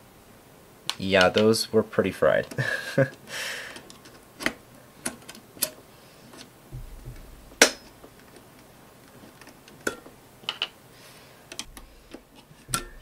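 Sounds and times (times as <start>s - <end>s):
glass fuses clicking out of holders: 11.5s - 13.0s.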